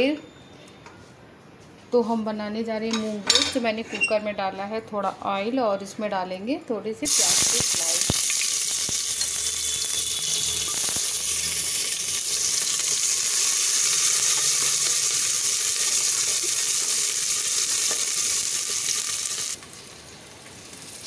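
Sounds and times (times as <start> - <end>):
onions sizzling in hot oil: 7.1 - 21.0.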